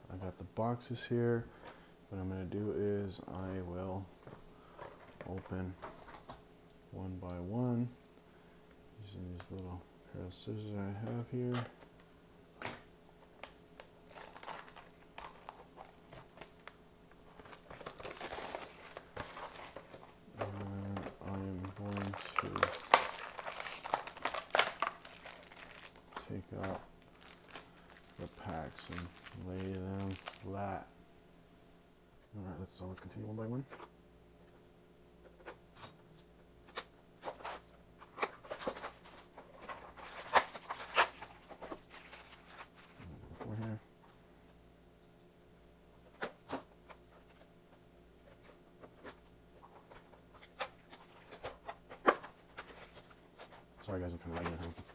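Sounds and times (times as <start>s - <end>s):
plastic wrapping crinkling and tearing: 13.2s - 30.6s, 37.2s - 43.1s, 48.9s - 54.9s.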